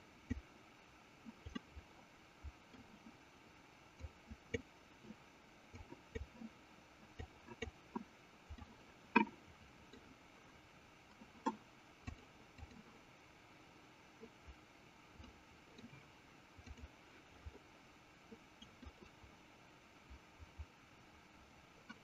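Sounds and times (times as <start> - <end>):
computer mouse clicking: 1.3 - 1.9, 4.0 - 10.1, 11.1 - 12.9, 15.2 - 17.6, 18.3 - 19.2.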